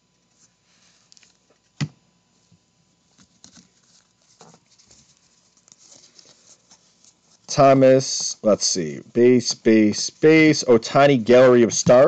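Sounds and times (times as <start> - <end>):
cards rustling while shuffled: 3.1 - 7.5.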